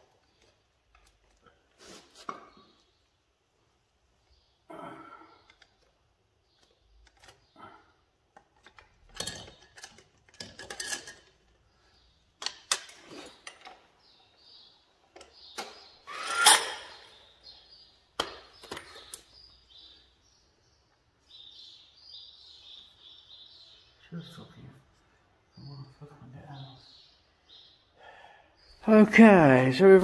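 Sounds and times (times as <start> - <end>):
hand tools clinking against metal: 8.7 - 11.5.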